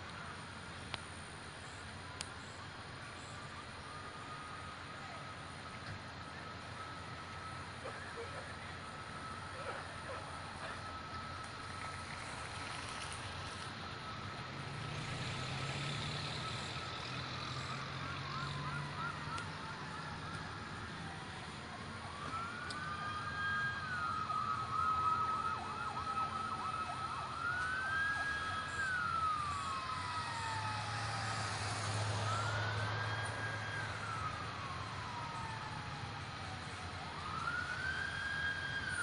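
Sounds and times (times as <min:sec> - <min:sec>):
emergency sirens wailing and yelping: 0:00.0 - 0:39.0
low engine rumble: 0:15.6 - 0:39.0.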